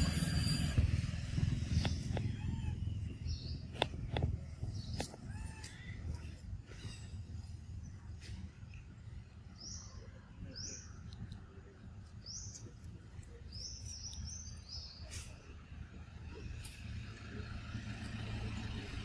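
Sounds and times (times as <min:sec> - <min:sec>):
low background rumble: 0:00.0 - 0:19.0.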